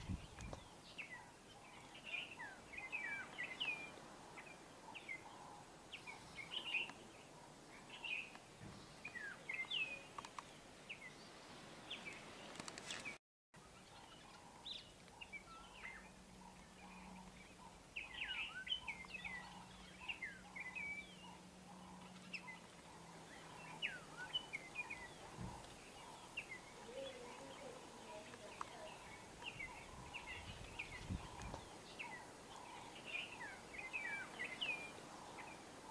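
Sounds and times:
small birds chirping: 0.0s - 35.9s
faint low hum: 13.6s - 35.9s.

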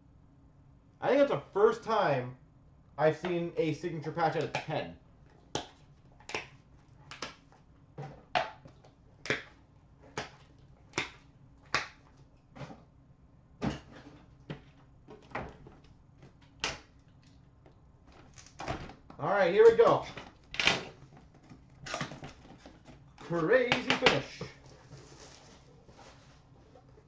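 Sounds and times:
cards tapping and rustling: 18.2s - 25.0s.

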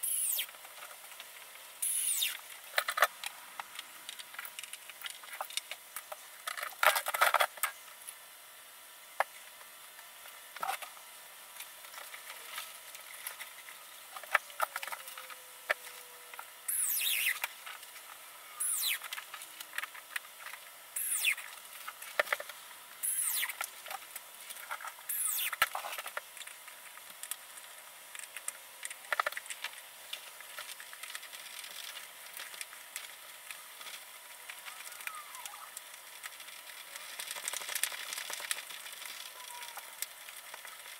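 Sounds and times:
short high-pitched falling sweeps: 0.0s - 0.5s, 1.8s - 2.4s, 16.7s - 17.5s, 18.5s - 19.1s, 21.0s - 21.5s, 23.0s - 23.6s, 25.1s - 25.6s.

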